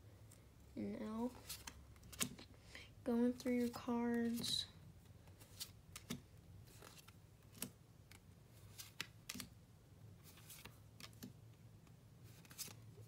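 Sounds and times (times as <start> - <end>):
trading cards flipped by hand: 1.4 - 2.5, 5.3 - 9.5, 10.2 - 11.4, 12.3 - 12.8.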